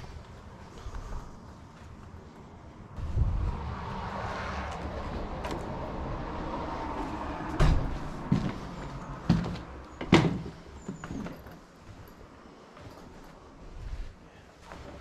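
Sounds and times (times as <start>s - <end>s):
steady low rumble: 0.0s - 9.2s
sharp knocks and clunks: 7.5s - 8.6s, 9.3s - 11.4s.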